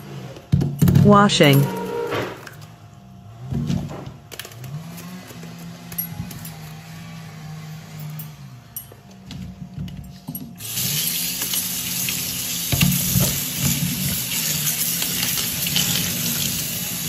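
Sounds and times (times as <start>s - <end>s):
tap water running into colander: 10.6s - 17.0s.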